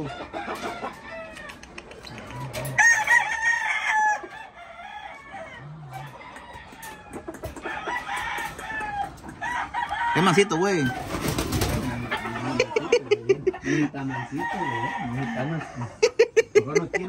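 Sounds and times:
rooster crowing: 2.3s - 11.2s, 14.0s - 15.9s.

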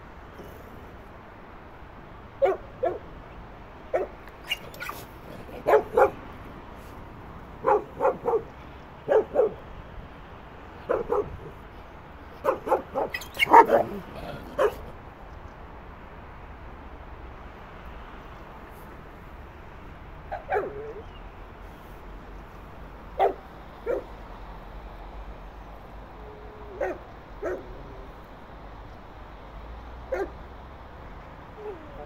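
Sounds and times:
dog barking: 2.4s - 3.0s, 3.9s - 6.2s, 7.6s - 9.6s, 10.9s - 11.5s, 12.4s - 14.9s, 20.3s - 21.0s, 23.2s - 24.1s, 26.7s - 27.8s, 30.1s - 30.4s.

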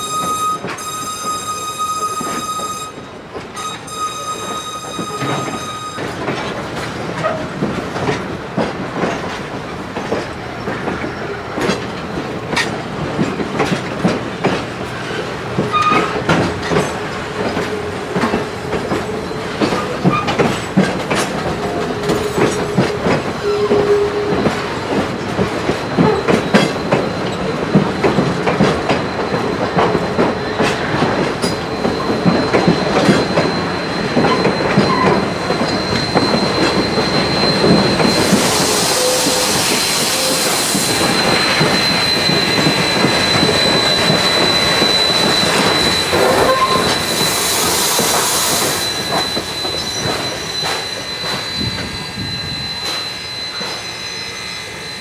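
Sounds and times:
high wheel squeal: 0.0s - 7.6s, 15.0s - 55.0s
train wheels clicking over rail joints: 2.1s - 53.9s.

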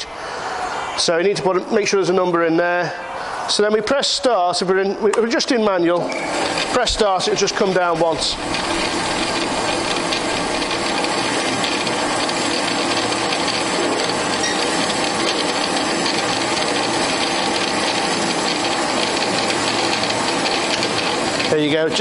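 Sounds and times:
bandsaw cutting metal stock: 6.2s - 22.0s.

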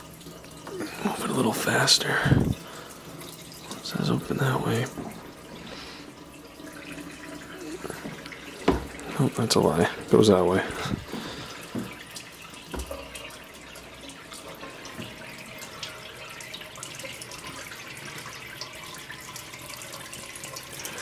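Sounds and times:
water pouring from a pipe: 0.0s - 21.0s.

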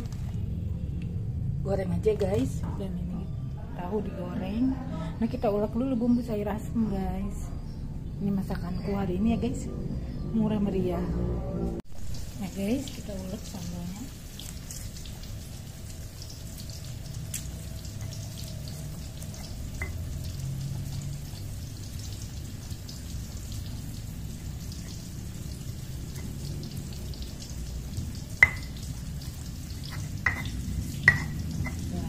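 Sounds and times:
stone knocking on stone: 28.4s - 28.7s, 29.9s - 31.8s
stone pestle grinding: 29.8s - 31.9s.

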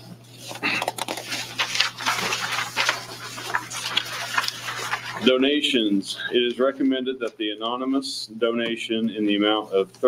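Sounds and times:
low electrical hum: 0.0s - 10.0s
paper rustling: 0.3s - 6.8s.

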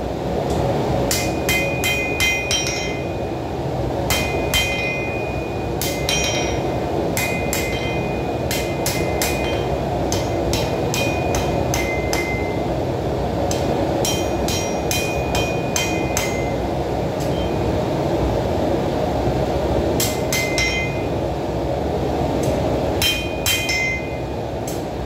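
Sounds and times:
hammer striking metal on anvil: 1.1s - 3.2s, 4.1s - 12.6s, 13.5s - 16.6s, 17.2s - 17.6s, 20.0s - 21.1s, 22.4s - 24.8s.

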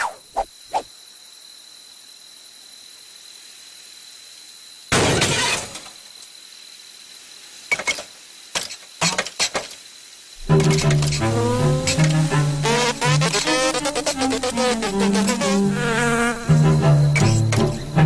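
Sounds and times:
loud cartoon crash: 4.9s - 5.9s.

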